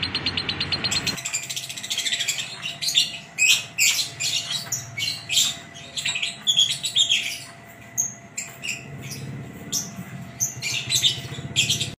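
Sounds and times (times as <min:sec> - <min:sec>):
lovebird chirping and squawking: 0:00.0 - 0:12.0.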